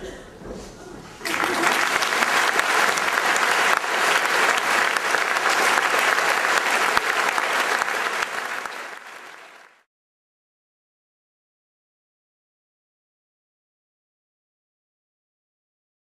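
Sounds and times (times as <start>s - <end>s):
audience applauding: 1.2s - 9.9s.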